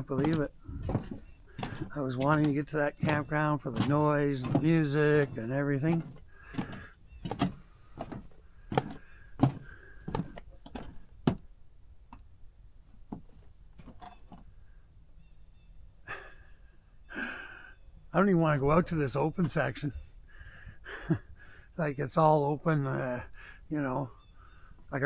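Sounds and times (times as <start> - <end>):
footsteps on wooden boardwalk: 0.0 - 11.5, 12.8 - 14.5.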